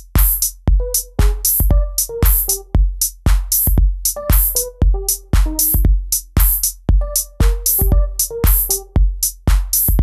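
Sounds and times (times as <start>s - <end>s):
hi-hat and snare hits: 0.0s - 10.0s
kick and bass drum hits: 0.0s - 10.0s
arpeggiated keyboard notes: 0.7s - 2.8s, 4.0s - 6.0s, 6.9s - 9.1s.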